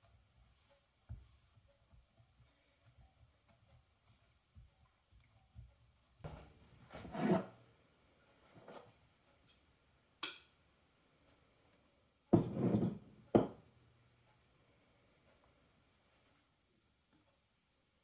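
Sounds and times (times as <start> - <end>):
dough scraped in ceramic bowl: 6.8 - 7.6.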